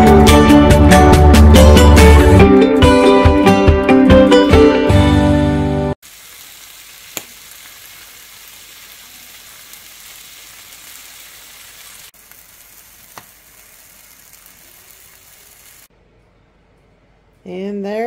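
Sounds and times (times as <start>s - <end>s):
ham sizzling in a frying pan: 6.0s - 15.9s.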